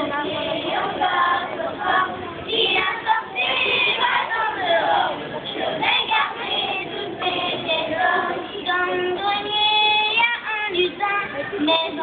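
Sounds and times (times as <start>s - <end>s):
children singing: 0.0s - 9.5s.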